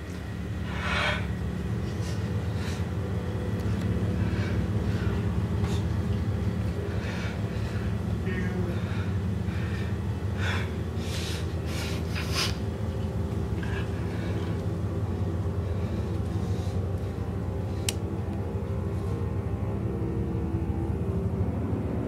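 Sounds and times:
low rumbling drone: 0:00.0 - 0:22.0
sharp breaths: 0:00.5 - 0:18.0.

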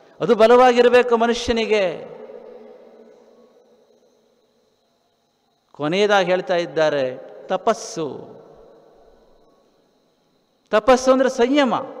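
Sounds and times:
room hiss: 0:00.0 - 0:12.0
echo of man speaking: 0:00.1 - 0:02.5, 0:05.8 - 0:08.5, 0:10.7 - 0:12.0.

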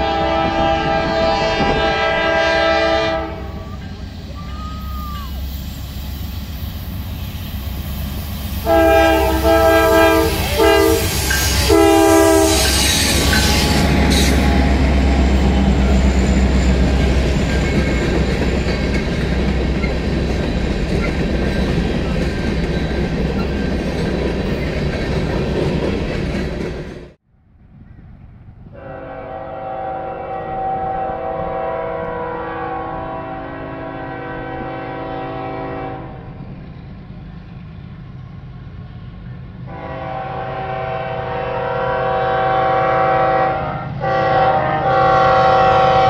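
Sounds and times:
train air horn: 0:00.0 - 0:05.7, 0:08.6 - 0:17.0, 0:28.7 - 0:36.4, 0:39.7 - 0:46.0
freight train rumbling past: 0:00.0 - 0:46.0.

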